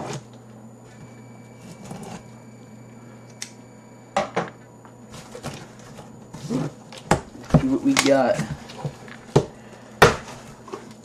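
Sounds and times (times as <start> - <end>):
cardboard rustling and scraping: 5.1 - 6.8, 10.2 - 11.0.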